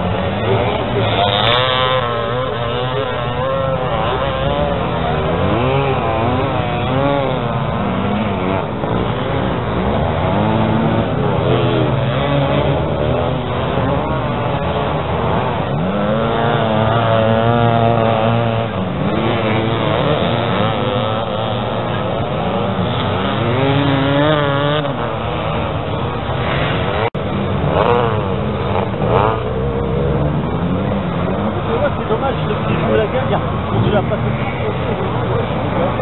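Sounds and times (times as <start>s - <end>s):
motocross motorcycles revving: 0.0s - 36.0s.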